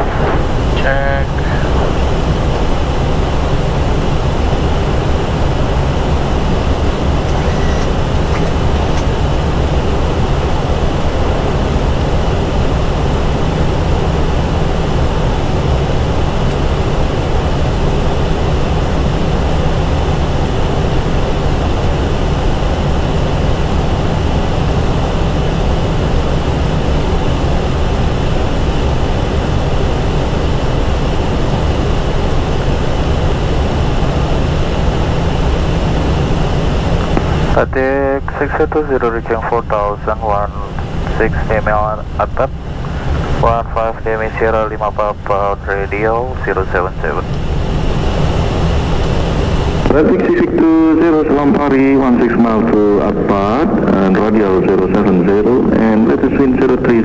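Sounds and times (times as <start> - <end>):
aircraft cabin airflow rushing: 0.0 - 38.9.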